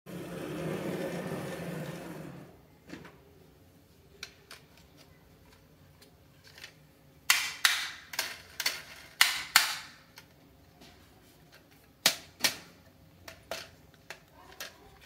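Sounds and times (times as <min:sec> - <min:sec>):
plastic toy truck clacks: 0:06.4 - 0:10.3.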